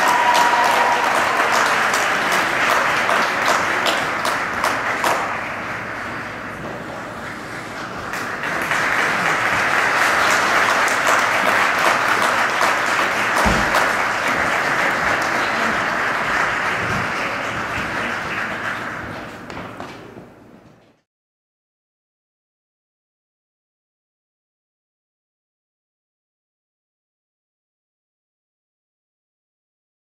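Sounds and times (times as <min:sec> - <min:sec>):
audience applauding: 0:00.0 - 0:19.6.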